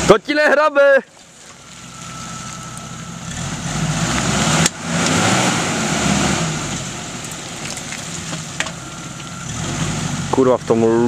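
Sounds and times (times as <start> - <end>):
engine revving hard: 3.2 - 7.1, 9.4 - 11.0.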